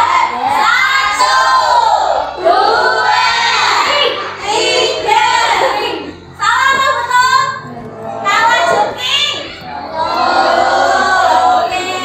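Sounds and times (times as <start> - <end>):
children singing together: 0.0 - 7.1, 8.0 - 12.0.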